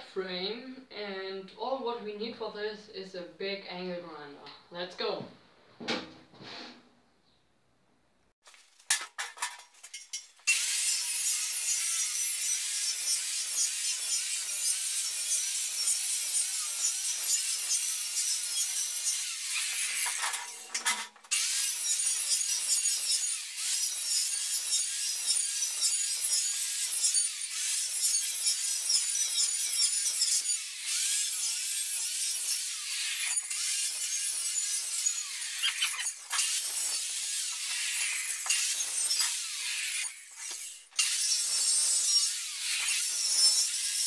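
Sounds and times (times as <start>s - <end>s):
metal knocks and clatter: 8.8s - 10.4s
angle grinder cutting steel: 9.4s - 44.0s.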